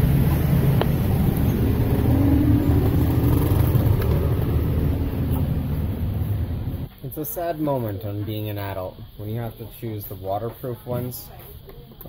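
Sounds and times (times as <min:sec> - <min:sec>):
vehicle engine hum: 0:00.0 - 0:06.9
low rumble of street traffic: 0:00.0 - 0:12.0.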